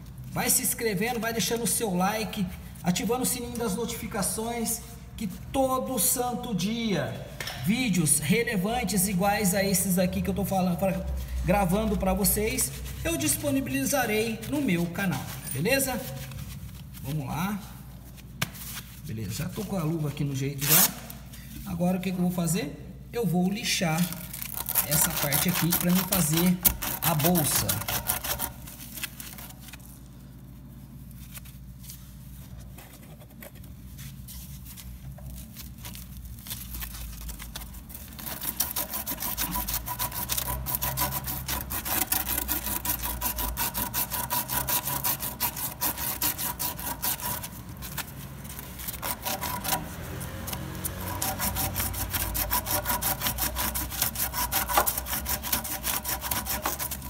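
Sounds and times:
abrasive cloth rasping on copper tube: 24.3s - 29.5s, 36.8s - 57.0s.

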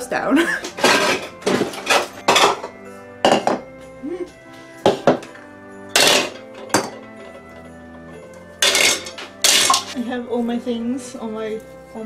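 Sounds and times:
background music: 0.0s - 12.0s
plastic bowls clattering on counter: 0.6s - 3.6s, 6.0s - 7.4s, 8.6s - 10.0s.

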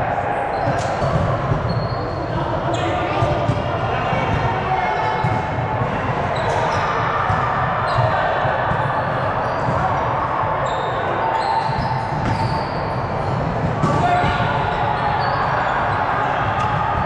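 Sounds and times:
sneakers squeaking on court: 0.5s - 3.6s, 9.0s - 9.9s, 10.6s - 16.8s.

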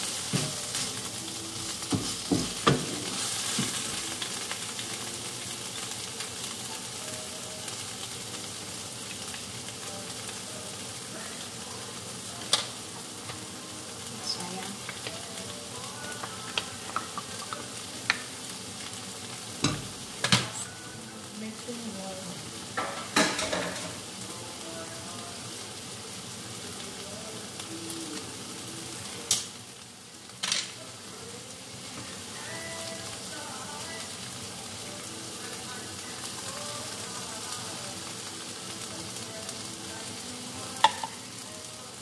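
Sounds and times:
food sizzling in a wok: 0.0s - 42.0s
utensils knocking on pan: 0.3s - 0.6s, 1.9s - 3.8s, 16.2s - 18.3s, 19.6s - 20.6s, 22.8s - 24.0s, 40.8s - 41.2s.

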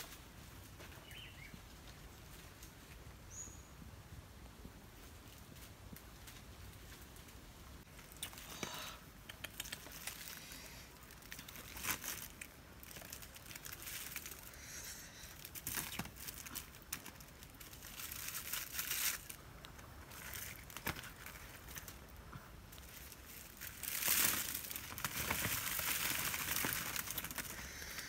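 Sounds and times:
fruit skins crackling and tearing: 7.8s - 28.0s
sharp snaps: 8.0s - 10.2s.

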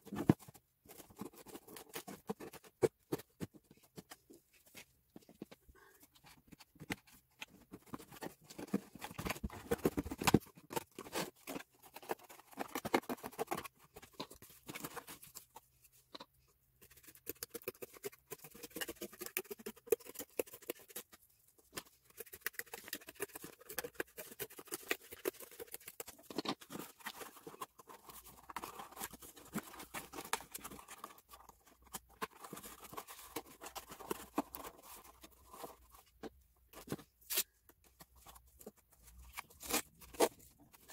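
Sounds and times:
scissors cutting cardboard: 16.8s - 35.9s, 39.1s - 40.9s.

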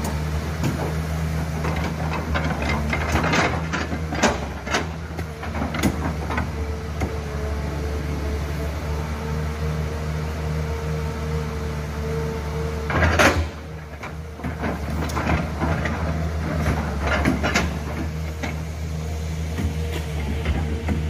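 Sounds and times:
diesel engine running: 0.0s - 21.0s
excavator bucket knocks and clanks: 12.9s - 18.6s, 19.6s - 21.0s.

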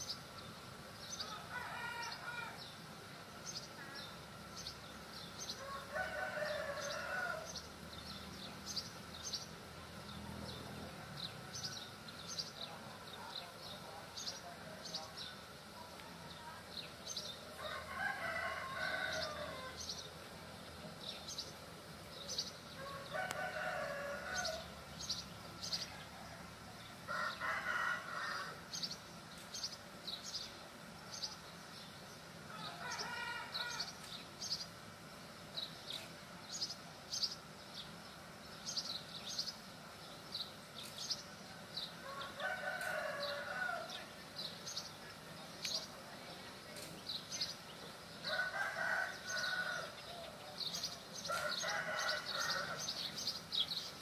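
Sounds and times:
rooster crowing: 1.2s - 2.6s, 5.6s - 7.6s, 17.6s - 19.8s, 22.8s - 24.8s, 27.1s - 28.6s, 32.5s - 34.0s, 42.0s - 44.0s, 48.2s - 50.3s, 51.2s - 53.0s.

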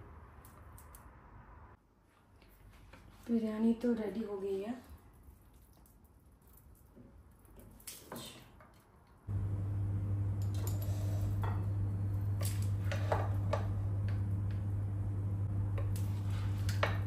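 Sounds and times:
steady low hum: 9.3s - 17.0s
spatula scraping pot and plate: 10.6s - 11.6s, 12.8s - 13.6s.

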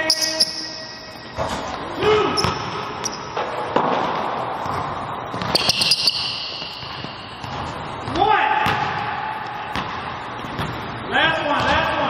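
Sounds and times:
sneakers squeaking on court: 0.0s - 3.9s, 4.6s - 8.8s.

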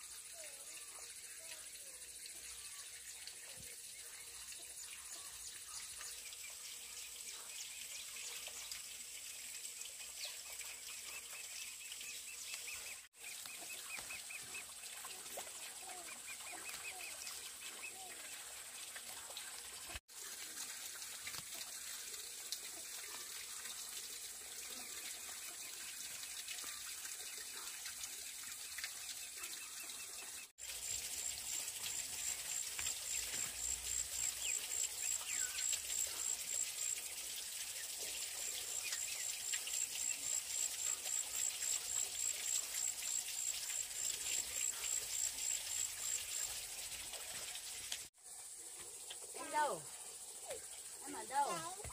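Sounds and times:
small birds chirping: 31.9s - 43.4s.

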